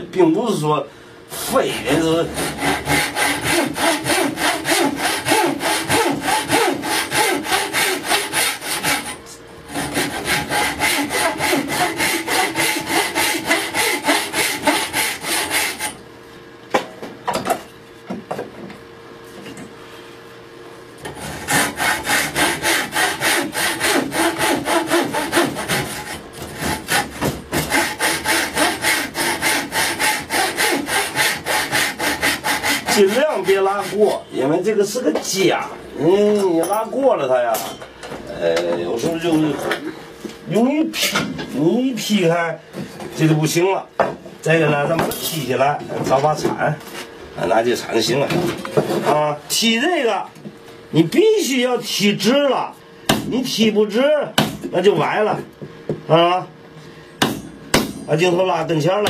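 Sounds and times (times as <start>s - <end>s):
saw cutting wood: 1.3s - 16.0s, 21.0s - 34.3s.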